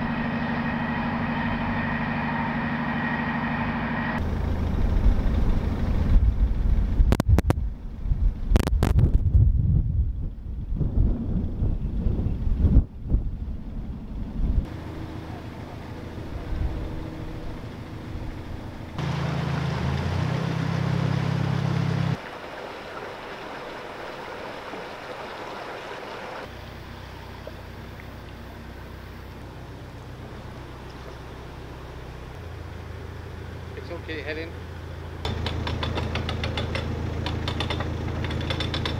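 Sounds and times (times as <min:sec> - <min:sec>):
diesel engine running at low revs: 0:00.0 - 0:22.2, 0:26.4 - 0:38.9
water noise: 0:00.0 - 0:38.9
wind noise: 0:04.6 - 0:14.7.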